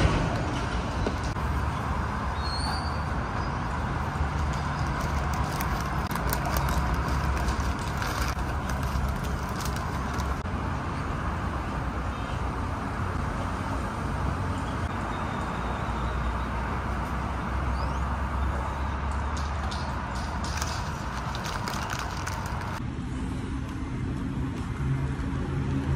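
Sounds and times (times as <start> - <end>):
low traffic rumble: 0.0 - 25.9
paper wrapping crinkling: 4.8 - 10.4, 20.4 - 22.8.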